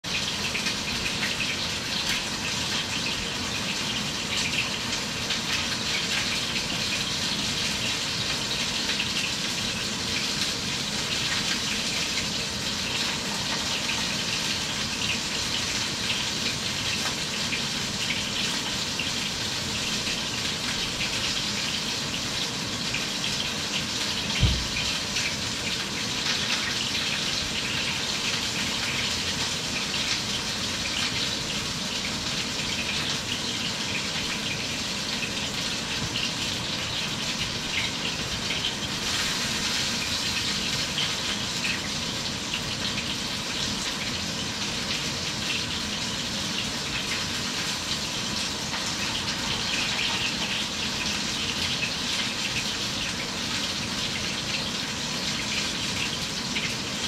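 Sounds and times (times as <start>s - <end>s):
low thump: 24.4s - 24.8s.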